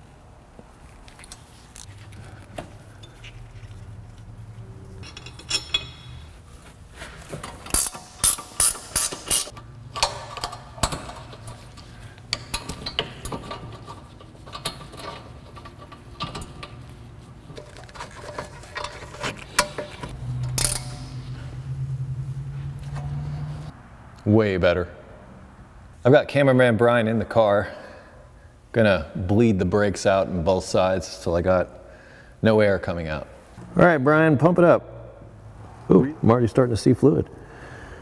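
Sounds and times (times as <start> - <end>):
hand ratchet clicking: 7.4 - 11.6, 18.3 - 21.2.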